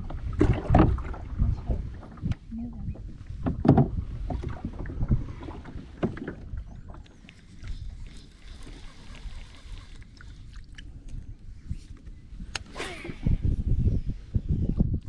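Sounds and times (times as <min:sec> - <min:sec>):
water sloshing against kayak hull: 0:00.0 - 0:11.9
wind rumble on microphone: 0:00.0 - 0:15.0.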